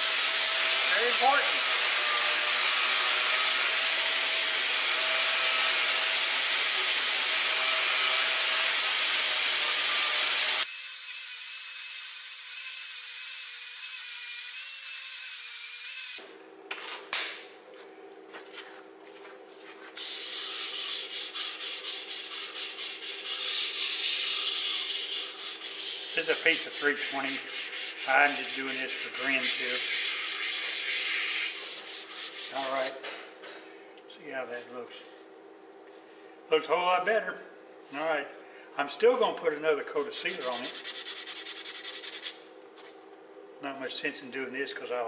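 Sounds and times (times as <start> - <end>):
hand rubbing spinning bowl: 19.6 - 32.5.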